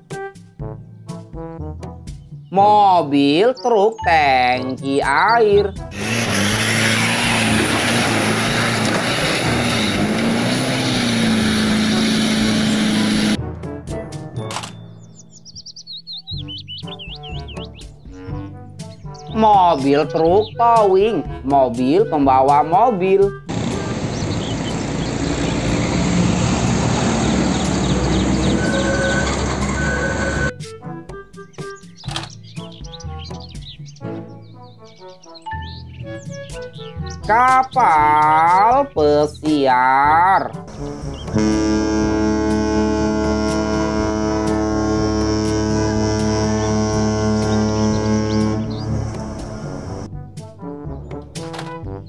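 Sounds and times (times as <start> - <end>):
truck engine labouring: 5.7 - 13.4, 23.5 - 30.5, 40.7 - 50.1
mud and water splashing: 6.0 - 13.4.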